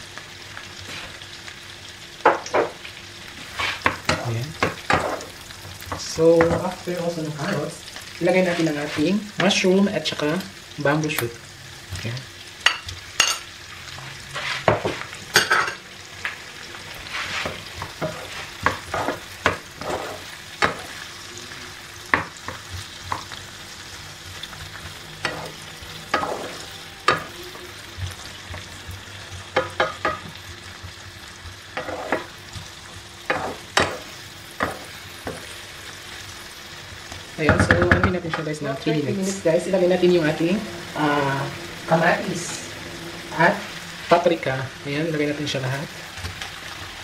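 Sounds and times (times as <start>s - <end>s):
vegetables sizzling in oil: 0.0s - 47.0s
wooden spoon scraping pan: 3.4s - 4.3s, 8.3s - 9.2s, 14.2s - 15.1s, 17.0s - 20.9s, 31.7s - 32.4s.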